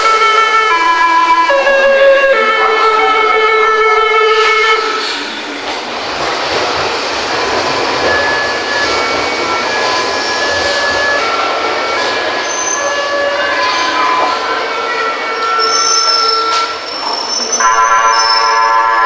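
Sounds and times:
train musical horn: 0:00.0 - 0:05.1, 0:12.7 - 0:16.9, 0:17.6 - 0:19.0
train running noise: 0:00.0 - 0:19.0.

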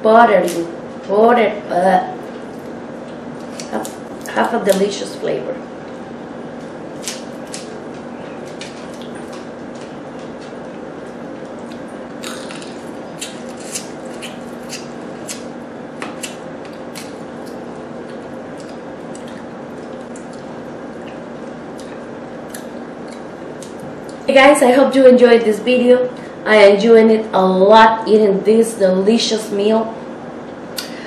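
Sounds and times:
steady low hum: 0:00.0 - 0:31.0
wet chewing: 0:08.4 - 0:15.5, 0:16.1 - 0:24.3.

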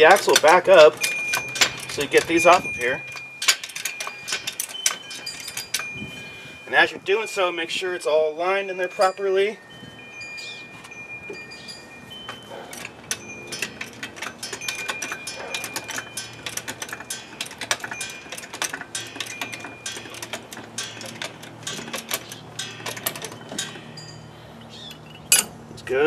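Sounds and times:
wind chime ringing: 0:00.0 - 0:25.7
jack clicking metallically: 0:00.0 - 0:26.0.

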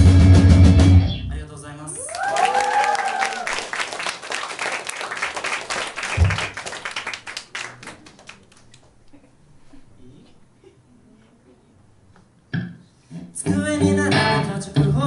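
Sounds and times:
rising whoop: 0:02.0 - 0:03.6
audience applauding and cheering: 0:02.0 - 0:08.8
low thump: 0:06.2 - 0:06.5.

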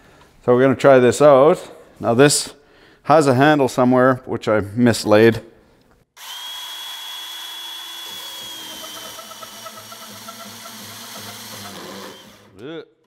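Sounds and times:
band saw cutting steel: 0:06.2 - 0:12.6.

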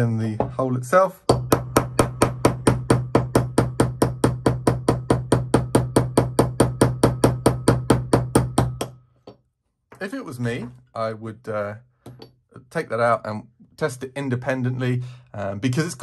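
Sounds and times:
hammer tapping a metal punch: 0:01.3 - 0:09.4.

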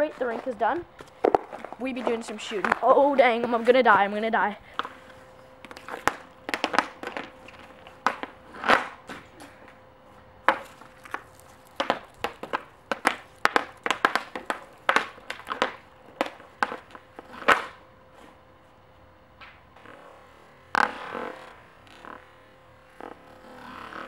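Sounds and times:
hockey stick clacking on puck: 0:05.6 - 0:09.0, 0:11.8 - 0:17.8
hockey puck shot crack: 0:05.7 - 0:09.5, 0:11.8 - 0:17.8.

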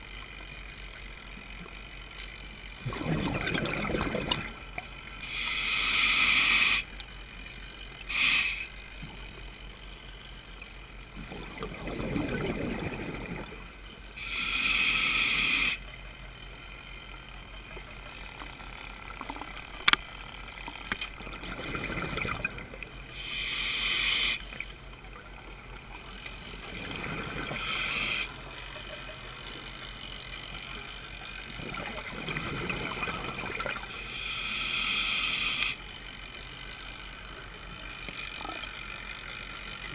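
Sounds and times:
exhaled bubbles bursting: 0:02.8 - 0:04.6, 0:11.3 - 0:13.6, 0:21.2 - 0:22.8, 0:31.6 - 0:33.8
scuba regulator inhale hiss: 0:05.2 - 0:06.9, 0:08.1 - 0:08.7, 0:14.2 - 0:15.8, 0:23.1 - 0:24.4, 0:27.5 - 0:28.3, 0:34.0 - 0:35.8.

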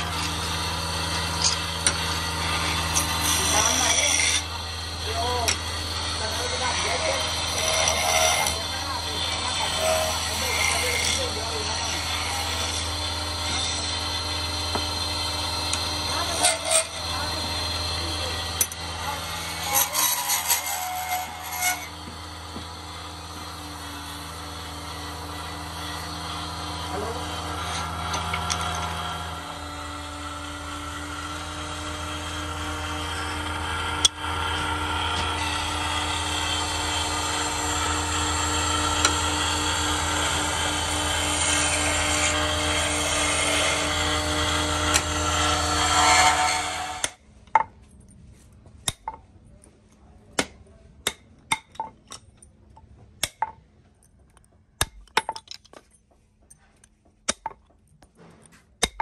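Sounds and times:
wood lathe humming: 0:00.0 - 0:47.2.

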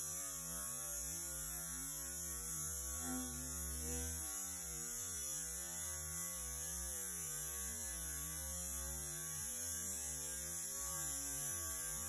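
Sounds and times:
slowed toilet flush hum: 0:01.0 - 0:08.0.

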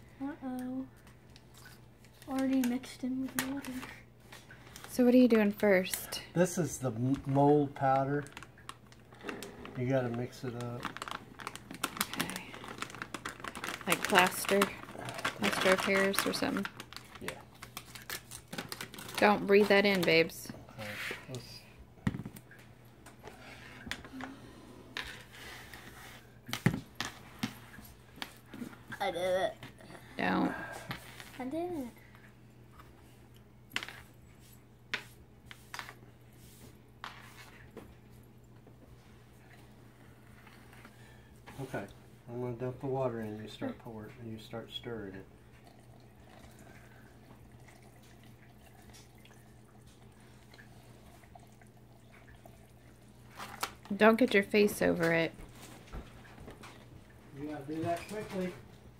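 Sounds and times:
low steady hum: 0:00.0 - 0:58.9
water dripping and pouring: 0:45.5 - 0:53.3.

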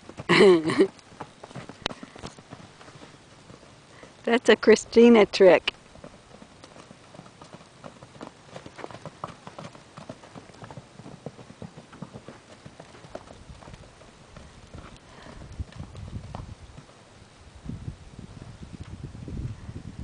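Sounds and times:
horse hoofbeats on soft dirt: 0:00.0 - 0:20.0.

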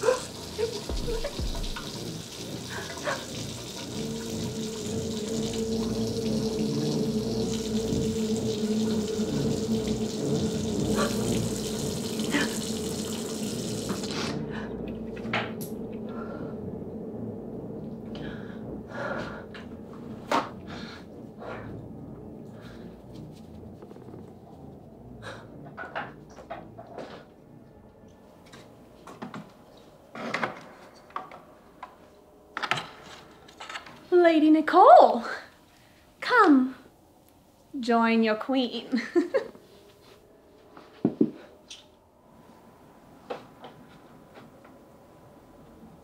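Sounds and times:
faucet running into steel sink: 0:00.0 - 0:14.4.

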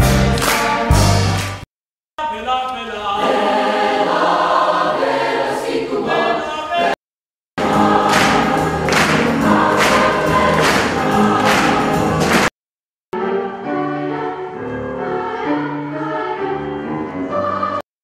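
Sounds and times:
children's choir singing: 0:03.1 - 0:07.0, 0:07.6 - 0:12.5, 0:13.2 - 0:17.8.

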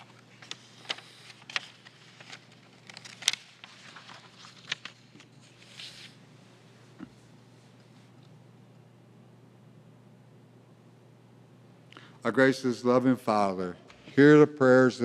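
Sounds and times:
paper rustling and clicking: 0:00.0 - 0:06.2
faint low hum: 0:00.0 - 0:15.0.

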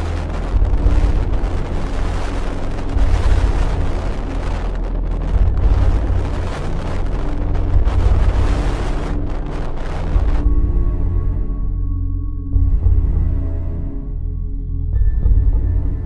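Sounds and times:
rough sea and breaking waves: 0:00.0 - 0:11.1
wind buffeting microphone: 0:00.0 - 0:11.5.

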